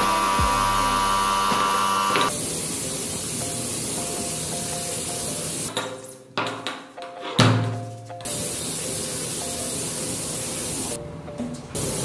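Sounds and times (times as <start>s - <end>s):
pressure washer motor buzzing: 0.0s - 2.3s
hiss of spraying: 0.0s - 5.7s, 8.3s - 11.0s, 11.8s - 12.0s.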